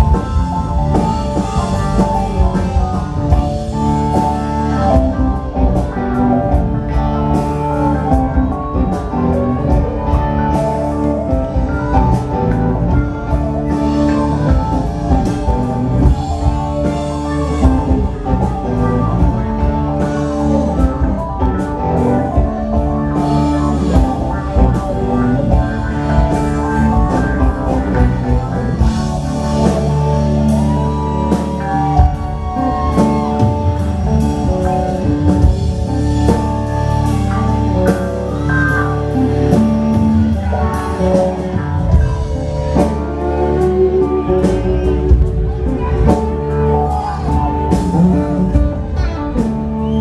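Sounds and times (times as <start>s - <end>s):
drum kit: 0.0s - 50.0s
electric guitars: 0.0s - 50.0s
keyboards: 0.0s - 50.0s.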